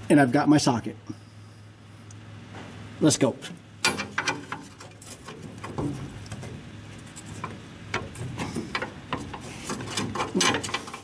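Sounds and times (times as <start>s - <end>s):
light metal clicks and scrapes: 3.8s - 11.0s.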